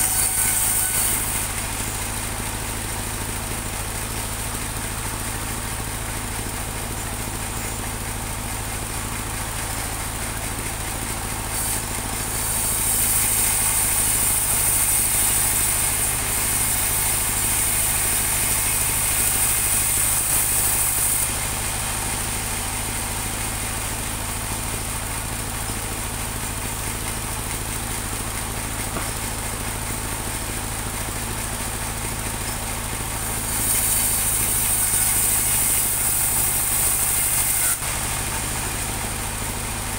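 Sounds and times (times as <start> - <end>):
sawmill engine running: 0.0 - 39.9
band blade cutting wood hiss: 11.5 - 15.7, 33.5 - 37.9.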